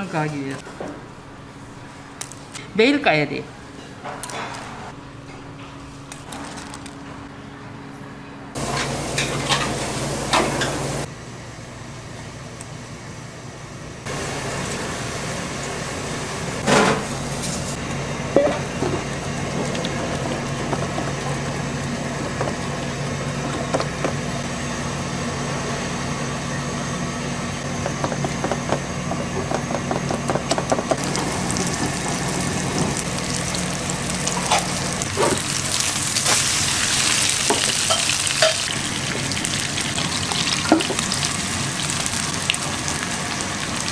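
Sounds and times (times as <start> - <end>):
steady hum: 7.1 - 39.5.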